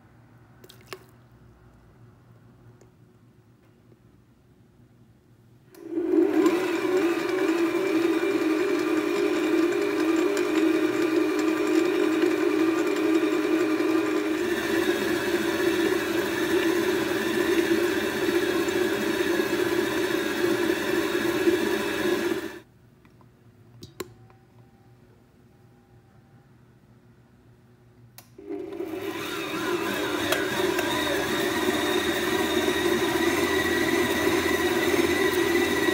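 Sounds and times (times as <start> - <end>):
stand mixer motor whining: 5.8 - 22.6, 28.4 - 35.9.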